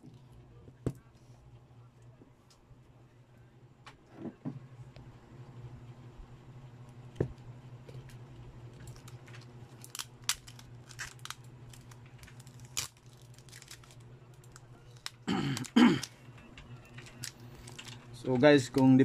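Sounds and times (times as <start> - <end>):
steady low hum: 0.0 - 19.0
crinkling rustles: 7.9 - 18.8.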